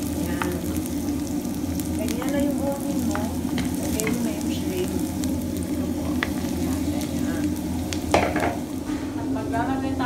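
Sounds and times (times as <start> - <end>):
onion sizzling in hot oil: 0.0 - 10.0.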